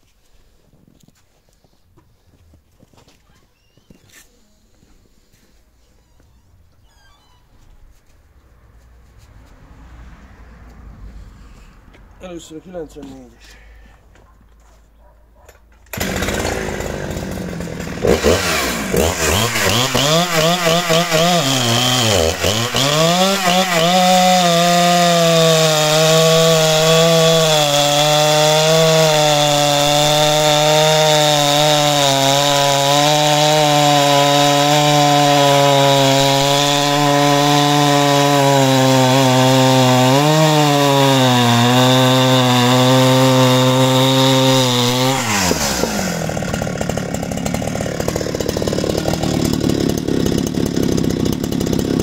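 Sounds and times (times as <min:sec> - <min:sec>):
chainsaw cutting log: 0:15.5 - 0:52.0.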